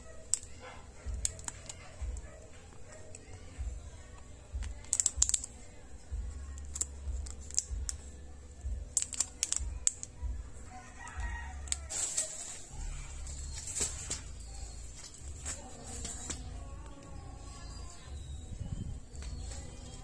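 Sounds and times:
plastic wrapper crinkling: 8.9s - 10.1s, 11.6s - 16.3s.

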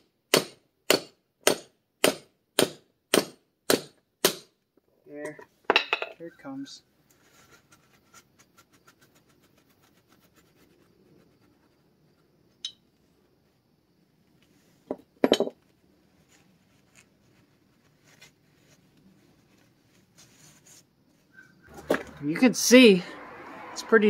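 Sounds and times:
cloth rag rubbing metal: 16.2s - 21.7s.

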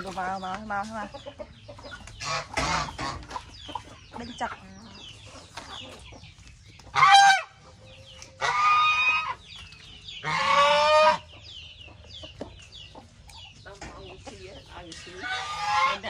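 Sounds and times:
high chirping of poultry: 0.0s - 16.0s
geese honking: 2.2s - 3.5s, 6.9s - 9.4s, 10.1s - 11.5s, 14.8s - 16.0s.

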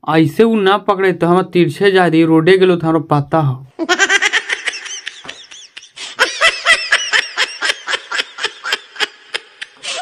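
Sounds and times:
high-pitched laughter: 3.8s - 10.0s.

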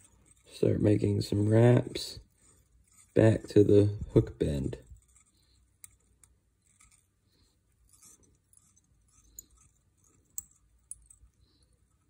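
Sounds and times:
thread rustling and ticking: 0.0s - 12.0s.

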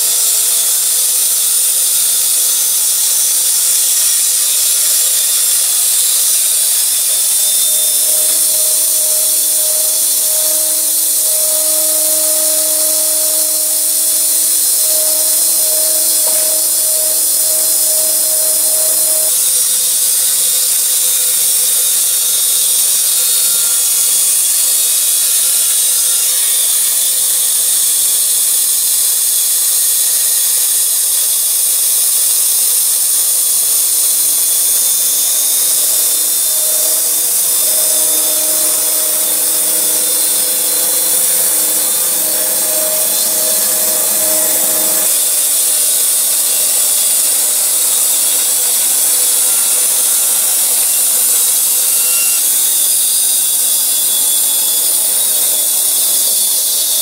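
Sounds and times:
band saw sawing log: 0.0s - 57.0s.

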